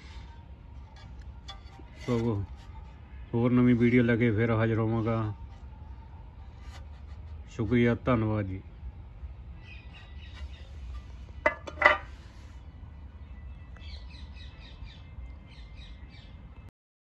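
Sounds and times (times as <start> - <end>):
low outdoor rumble: 0.0 - 16.7
birds chirping: 9.4 - 11.6, 12.2 - 16.7.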